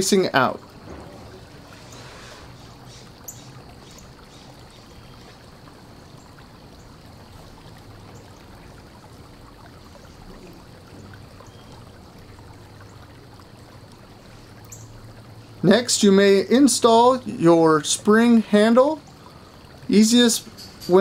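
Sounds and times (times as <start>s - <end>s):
low hum: 0.6s - 3.2s.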